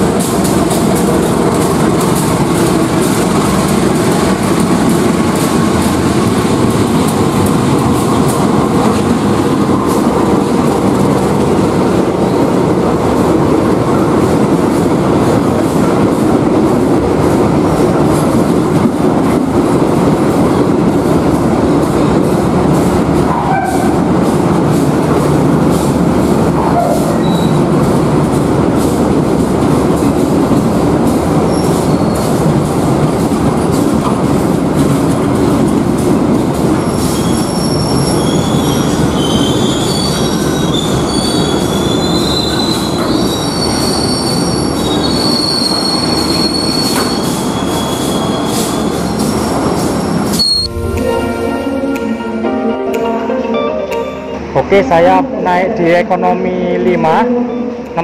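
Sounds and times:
train wheels rumbling: 0:00.0 - 0:52.7
wheel and brake squeals: 0:26.6 - 0:27.6, 0:36.8 - 0:49.2, 0:50.3 - 0:50.7.

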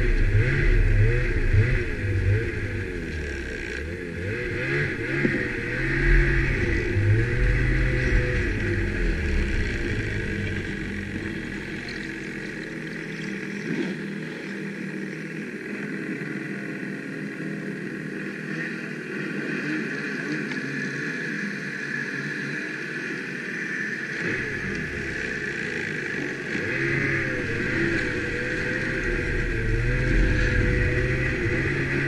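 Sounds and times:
snowmobile engine winding down: 0:00.0 - 0:32.0
snowmobile engines idling: 0:00.0 - 0:32.0.

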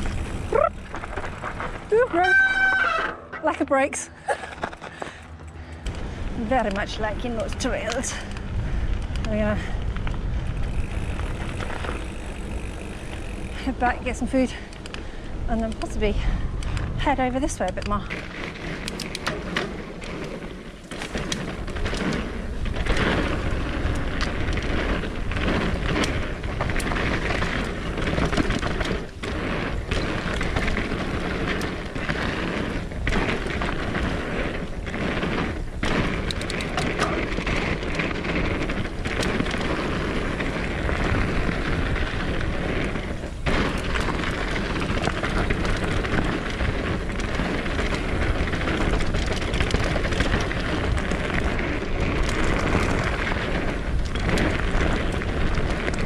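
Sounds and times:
wind buffeting microphone: 0:00.0 - 0:03.0, 0:04.5 - 0:20.2
bike knocks and rattles: 0:00.0 - 0:56.0
tyres rolling over dirt: 0:00.0 - 0:56.0.

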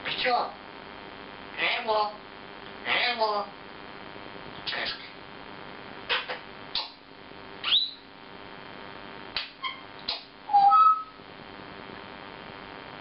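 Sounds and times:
parrot whistling: 0:07.6 - 0:08.0, 0:10.5 - 0:11.2
parrot clicks: 0:09.4 - 0:10.3.

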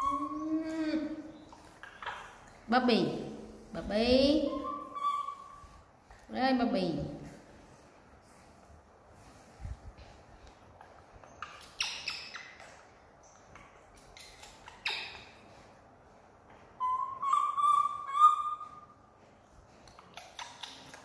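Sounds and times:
macaque squeaks and calls: 0:00.0 - 0:00.6, 0:01.7 - 0:02.4, 0:04.4 - 0:05.7, 0:10.9 - 0:12.8, 0:14.2 - 0:15.4, 0:16.8 - 0:18.9, 0:20.1 - 0:21.0.

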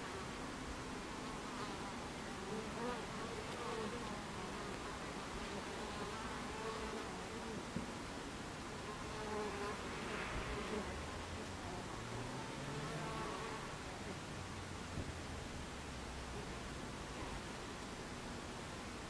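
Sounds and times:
honeybees buzzing: 0:00.0 - 0:14.3.

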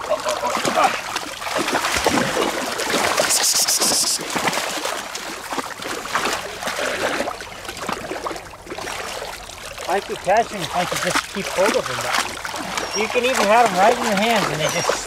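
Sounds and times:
splashing in shallow muddy water: 0:00.0 - 0:15.0
hissing splash: 0:00.5 - 0:07.4.

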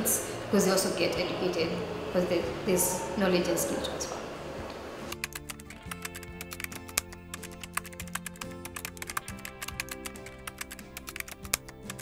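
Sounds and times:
background music sustained notes: 0:00.0 - 0:12.0
keyboard typing clicks: 0:05.1 - 0:12.0.

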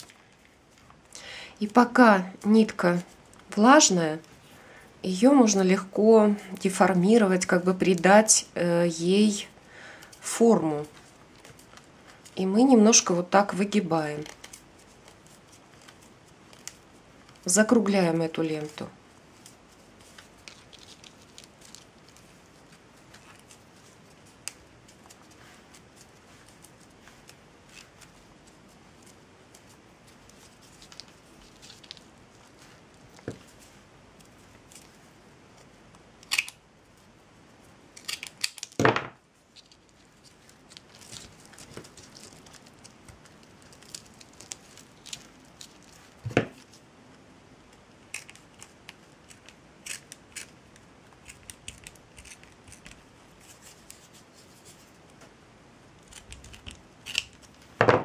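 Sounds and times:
clicks and rustles of twine: 0:18.6 - 0:35.7, 0:39.5 - 0:46.8, 0:48.1 - 0:55.2.

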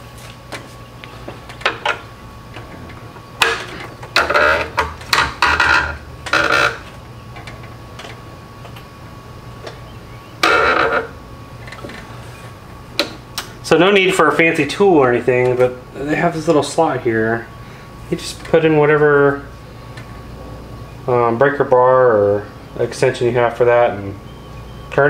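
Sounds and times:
mechanical clatters and rubs: 0:01.4 - 0:08.2.

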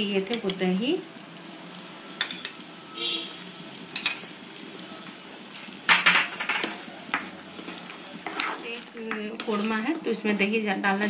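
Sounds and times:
faint sizzle: 0:00.0 - 0:11.0
steel spoon clinking on pan: 0:03.9 - 0:04.3.

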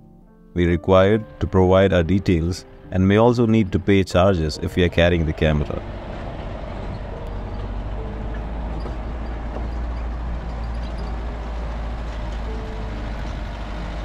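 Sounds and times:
jeep engine and road noise: 0:00.6 - 0:14.0.

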